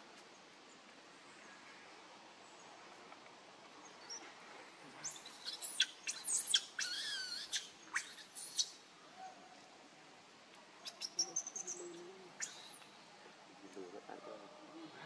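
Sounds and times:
baby monkey screaming: 5.0 - 8.7.

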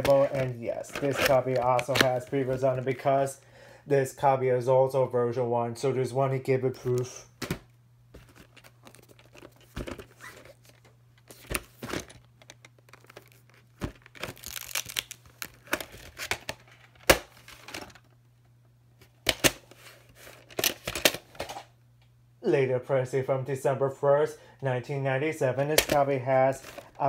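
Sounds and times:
plastic case rustling and scraping: 0.0 - 2.9, 8.2 - 14.7, 19.0 - 21.7, 26.5 - 27.0.

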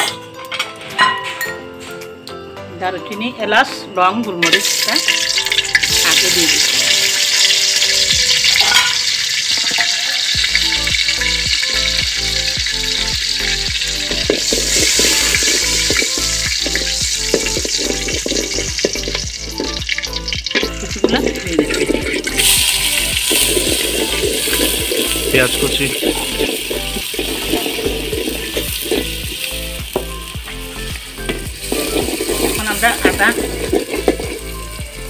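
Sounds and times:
onion sizzling: 4.4 - 35.0
spices sizzling in oil: 4.4 - 35.0.

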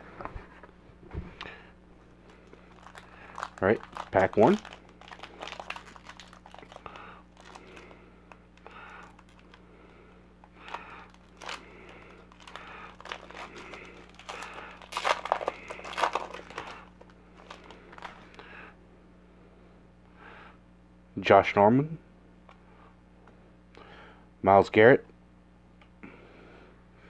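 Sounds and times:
foil wrapper crinkling: 2.0 - 9.6, 10.5 - 18.4
foil wrapper tearing open: 2.2 - 8.0, 8.9 - 9.6, 10.6 - 18.3.

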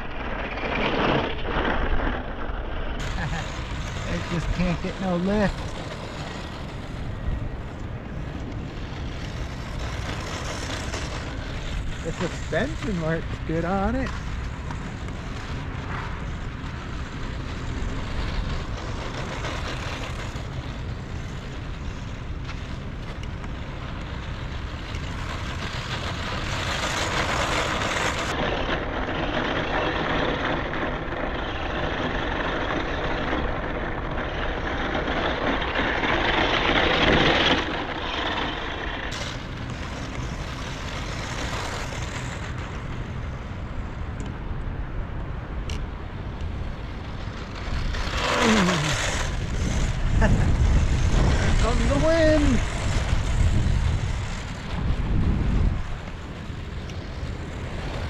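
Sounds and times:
rc truck motor and tyres on dirt: 0.0 - 58.0
wind rumbling on microphone: 0.0 - 58.0.

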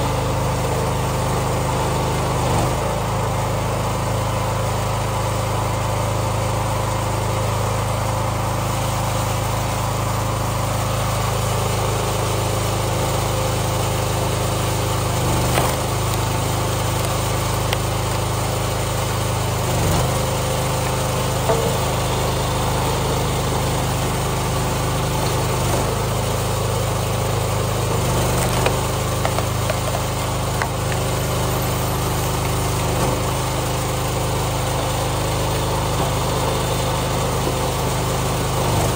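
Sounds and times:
small gas engine running: 0.0 - 38.9
wood splitting knocks: 15.4 - 18.6, 20.0 - 23.2, 28.2 - 31.5.

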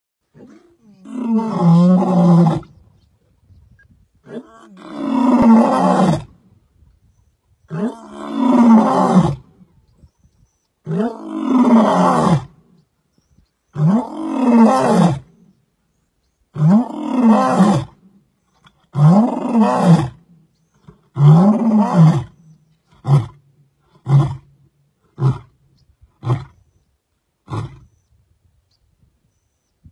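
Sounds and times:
lion roaring: 4.3 - 6.4, 10.9 - 12.6, 13.8 - 15.3.

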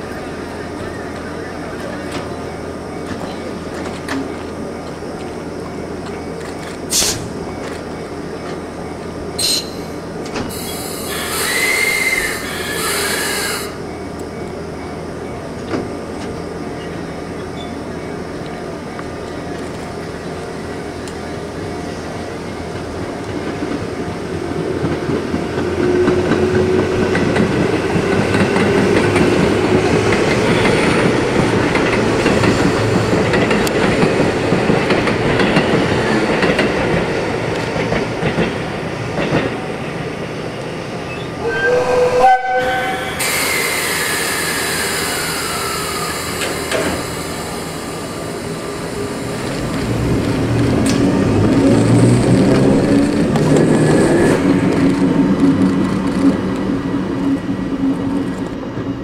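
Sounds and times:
train wheels on rails: 0.0 - 59.0
train horn blast: 41.4 - 43.3.

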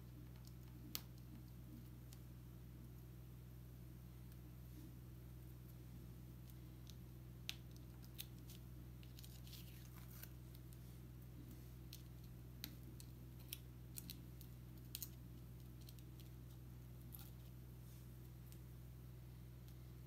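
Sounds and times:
paper crinkling and peeling: 7.8 - 10.8.

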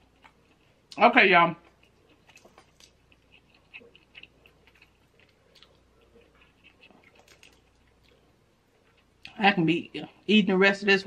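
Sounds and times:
crab shell clicks and crackles: 6.7 - 8.1.

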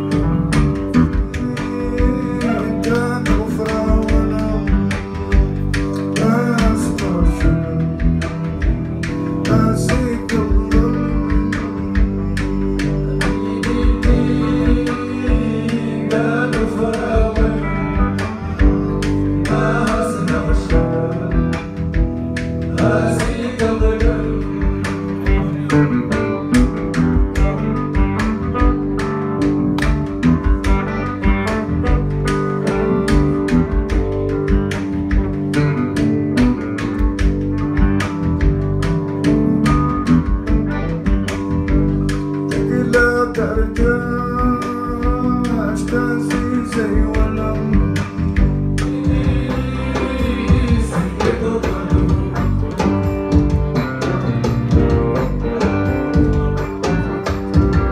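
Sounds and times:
electric bass: 0.0 - 57.9
guitars: 0.0 - 57.9
hand drum beat: 0.0 - 57.9
voices singing: 9.5 - 26.6, 48.8 - 53.5.

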